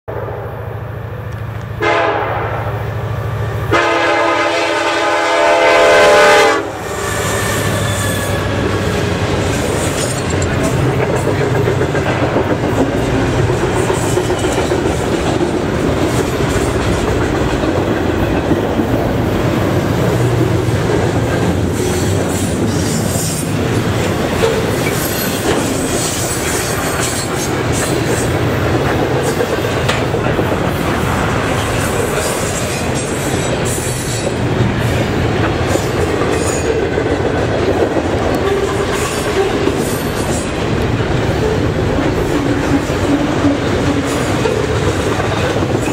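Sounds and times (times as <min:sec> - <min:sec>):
steel train wheels rumbling on rail: 0:00.1 - 0:45.9
train wheel clicks: 0:08.6 - 0:45.9.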